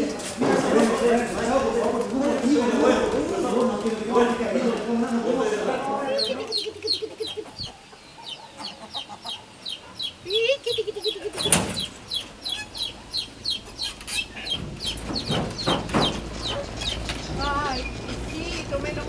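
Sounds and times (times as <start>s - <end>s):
chicks peeping: 0.5s - 19.0s
hen clucking: 5.6s - 19.0s.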